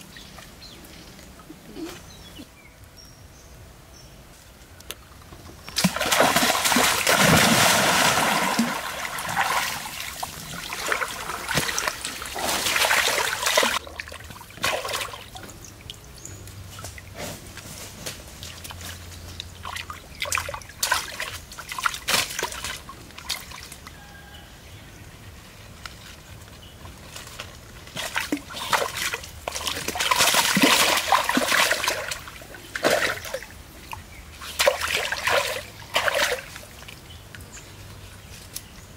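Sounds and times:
person wading in water: 0:27.9 - 0:37.0.

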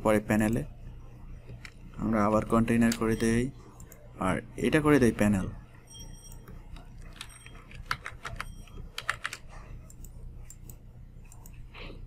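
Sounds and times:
typing on computer keyboard: 0:07.0 - 0:11.6.

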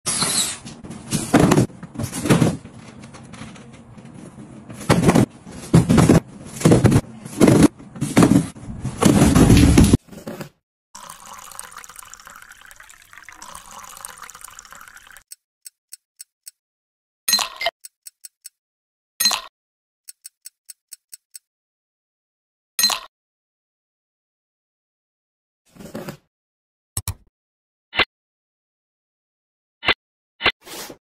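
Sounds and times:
cardboard boxes thudding and scraping: 0:00.8 - 0:03.5, 0:04.1 - 0:10.0.

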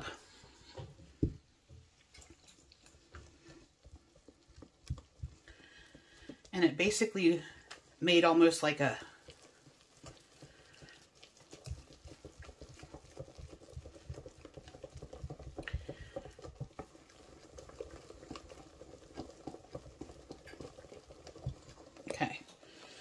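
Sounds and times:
whisk clicking and scraping bowl: 0:02.0 - 0:23.0.

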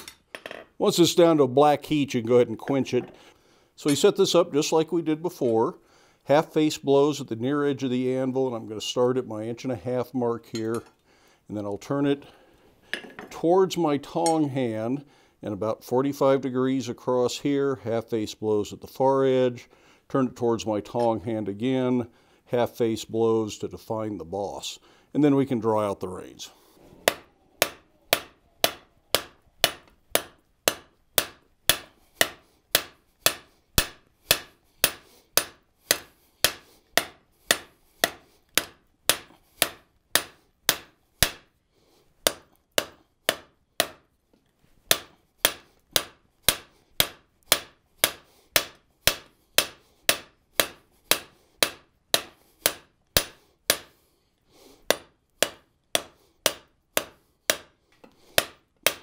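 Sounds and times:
hammer striking hot steel on anvil: 0:27.0 - 0:41.5, 0:42.3 - 0:44.0, 0:44.9 - 0:53.9, 0:54.9 - 0:57.7, 0:58.4 - 0:59.0.

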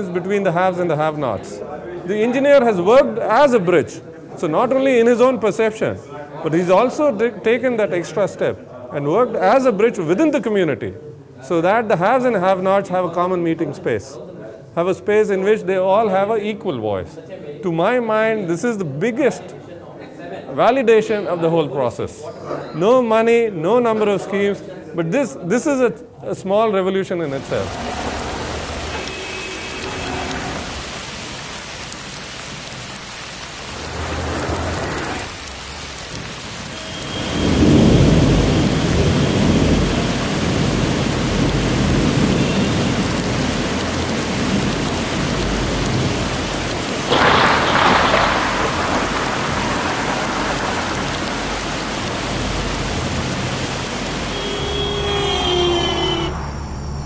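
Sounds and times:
heavy rain falling: 0:27.2 - 0:56.4
thunder rumbling: 0:33.6 - 0:56.3
sharp thunderclap: 0:36.8 - 0:42.8, 0:45.7 - 0:53.6.

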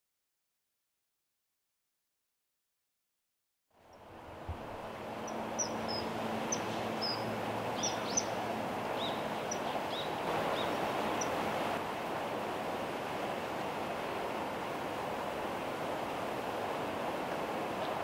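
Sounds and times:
stream rushing: 0:03.8 - 0:18.0
kingfishers shrill calls: 0:05.3 - 0:08.4.

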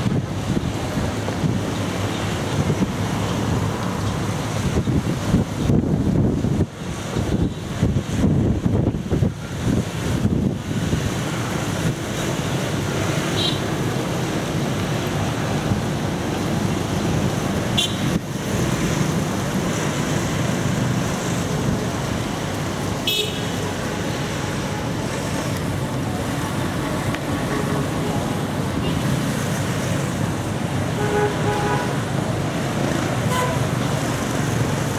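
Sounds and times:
street traffic: 0:00.0 - 0:34.9
horn beeps: 0:31.0 - 0:32.0, 0:33.3 - 0:33.6.

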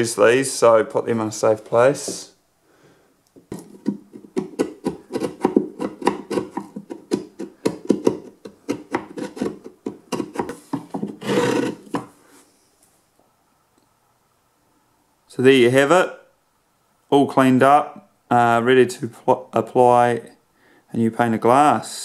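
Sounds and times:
chisel scraping putty: 0:03.5 - 0:12.1.

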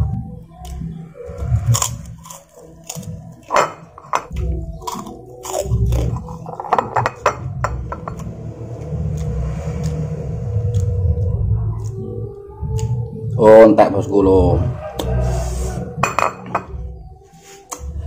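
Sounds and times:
person chewing food: 0:00.6 - 0:06.7
low rumble: 0:07.4 - 0:13.4.

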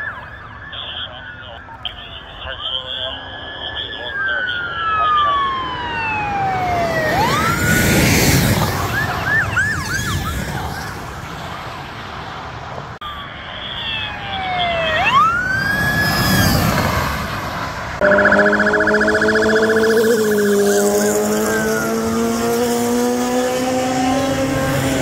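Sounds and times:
siren yelping chirps: 0:00.0 - 0:11.1, 0:13.0 - 0:17.0, 0:18.0 - 0:22.6
cars passing: 0:00.0 - 0:25.0
police sirens wailing: 0:00.0 - 0:25.0.

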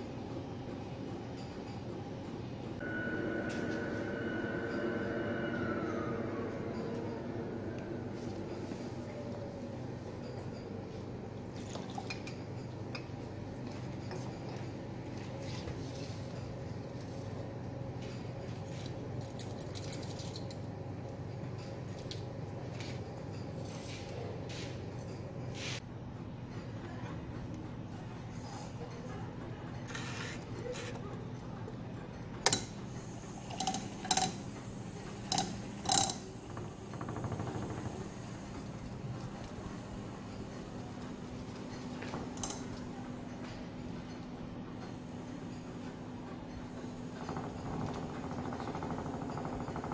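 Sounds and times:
steady low hum: 0:00.0 - 0:49.9
low hum: 0:02.8 - 0:10.9.

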